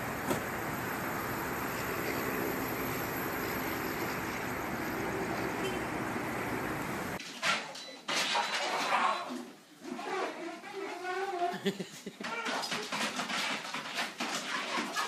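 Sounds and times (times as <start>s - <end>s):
continuous rushing hiss: 0.0s - 7.2s.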